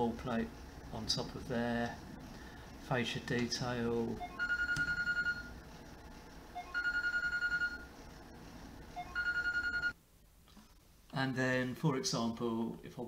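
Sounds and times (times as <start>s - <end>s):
telephone ringing: 4.2s - 5.6s, 6.5s - 7.9s, 9.0s - 10.0s.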